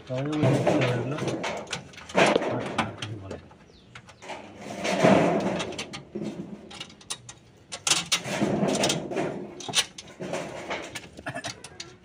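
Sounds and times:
metallic clicking and rattling of tools: 4.0s - 12.0s.

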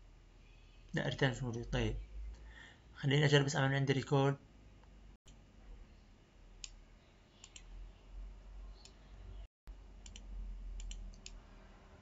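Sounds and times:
faint computer mouse clicks: 7.4s - 7.7s, 10.0s - 11.4s.

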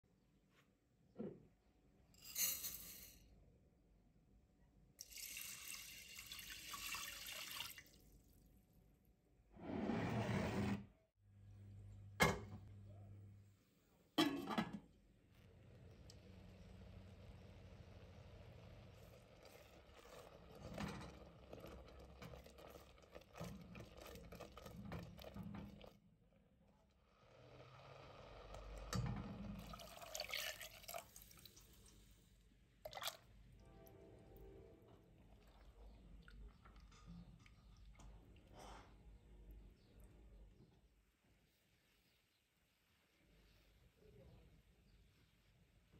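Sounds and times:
water pouring into saucepan: 5.0s - 8.4s, 15.8s - 26.0s, 27.5s - 32.0s, 32.8s - 33.3s
spatula scraping pot: 9.6s - 10.9s, 19.0s - 25.9s.

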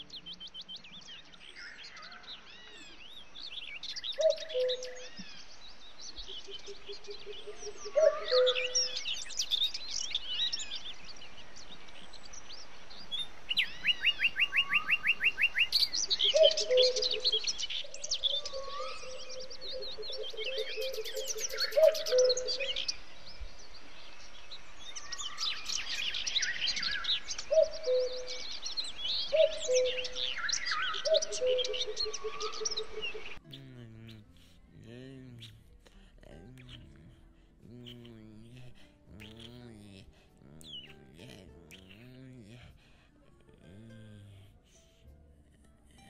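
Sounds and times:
birds singing and chirping: 0.0s - 45.1s
rapid bird trill: 1.6s - 11.2s, 13.1s - 23.0s, 25.0s - 35.6s, 36.4s - 43.0s.

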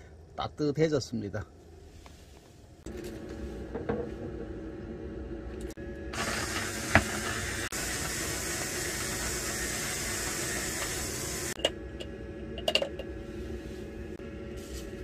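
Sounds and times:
electric coffee grinder grinding: 6.1s - 11.6s.

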